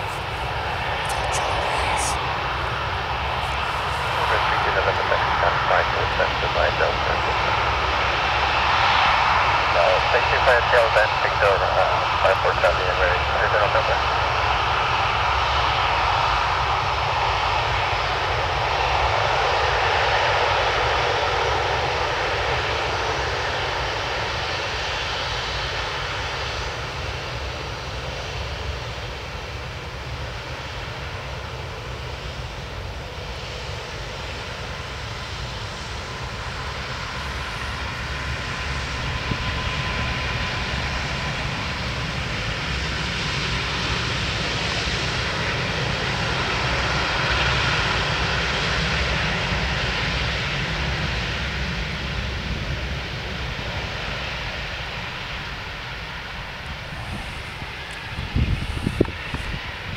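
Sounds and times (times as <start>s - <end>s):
jet engines rumbling and whining: 0.0s - 59.9s.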